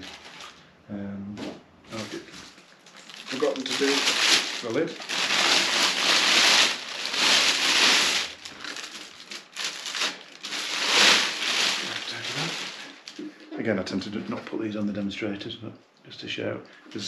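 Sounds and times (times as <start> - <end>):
plastic bag rustling and crinkling: 0.0 - 0.7, 1.9 - 14.6.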